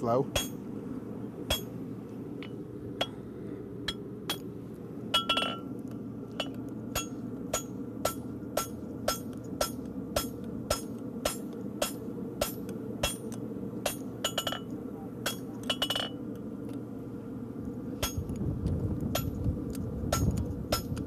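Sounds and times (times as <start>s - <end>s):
hammer ringing on hot steel: 0.3s - 0.6s, 1.5s - 1.7s, 3.8s - 4.4s, 5.1s - 5.7s, 6.4s - 16.2s, 18.0s - 18.3s, 20.1s - 21.0s.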